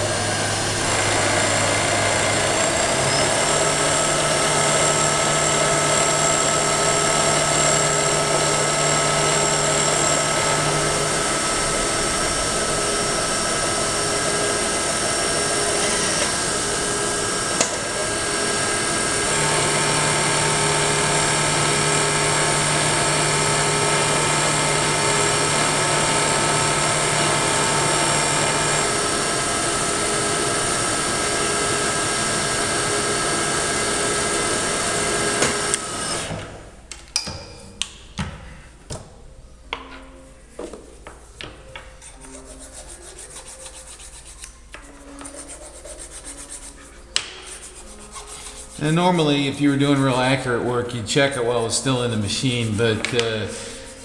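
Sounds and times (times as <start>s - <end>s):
milling machine cutting metal: 0.0s - 36.5s.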